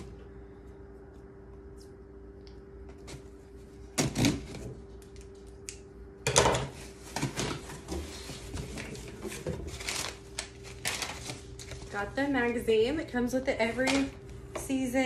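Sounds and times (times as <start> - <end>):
cardboard and packing rustling: 6.8 - 12.6.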